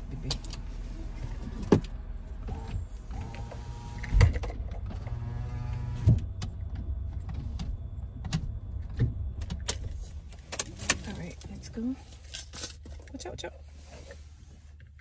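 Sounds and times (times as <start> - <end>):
power window motor whirring: 1.3 - 9.3.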